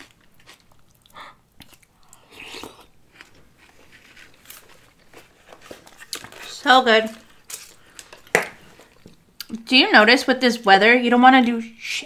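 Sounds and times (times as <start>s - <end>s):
crunchy chewing: 0.0s - 9.5s.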